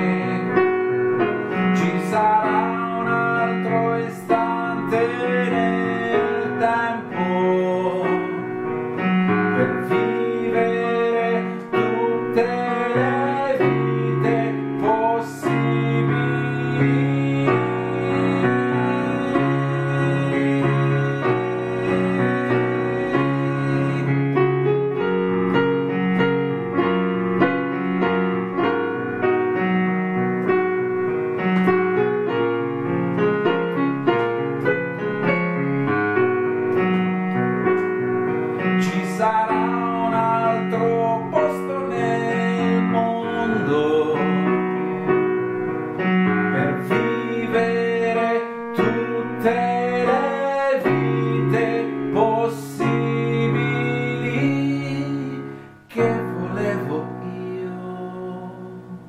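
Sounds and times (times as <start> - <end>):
man singing: 0.0 - 24.7, 38.6 - 44.9, 46.4 - 59.0
digital piano chords: 0.0 - 59.0.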